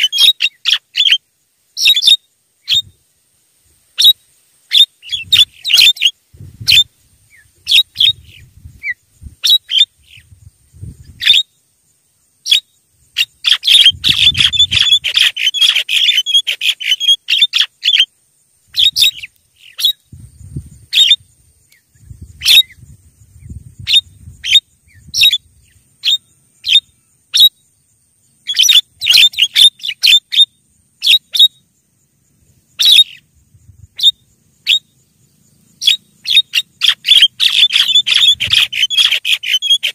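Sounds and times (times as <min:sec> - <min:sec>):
myna bird harsh calls: 0:00.0 - 0:03.0, 0:03.9 - 0:10.4, 0:12.4 - 0:18.1, 0:23.8 - 0:27.6, 0:28.4 - 0:31.7, 0:32.7 - 0:33.3, 0:33.9 - 0:39.9.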